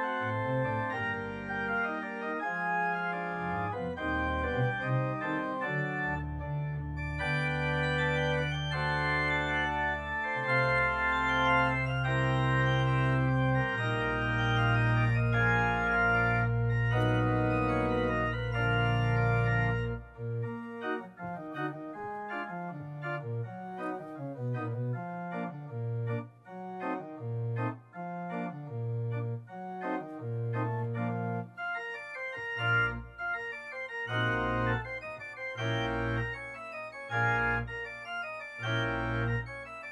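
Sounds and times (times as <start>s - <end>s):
organ music: 0.0s - 39.9s.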